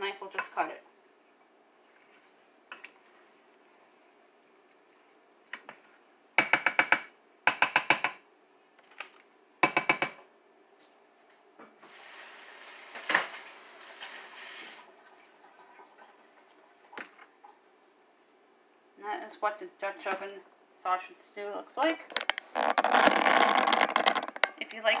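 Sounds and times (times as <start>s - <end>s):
tap water running into sink: 11.9s - 16.2s.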